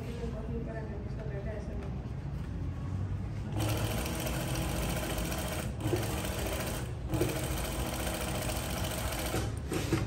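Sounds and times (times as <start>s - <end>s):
sewing machine stitching: 3.5s - 10.0s.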